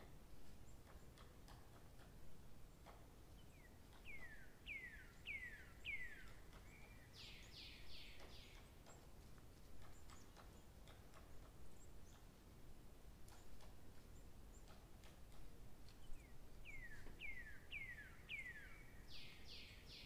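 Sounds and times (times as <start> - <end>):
faint ticks: 0.0 - 4.4, 8.0 - 12.4, 13.2 - 17.2
bird calling: 3.5 - 9.1, 16.0 - 20.0.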